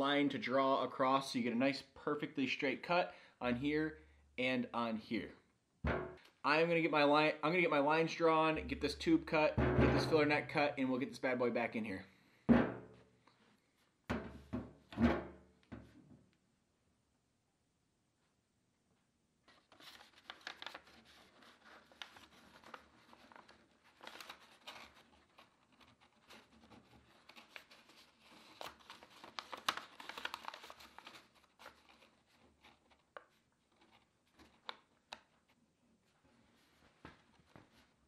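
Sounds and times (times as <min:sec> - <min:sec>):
paper crinkling: 0:19.5 - 0:35.6.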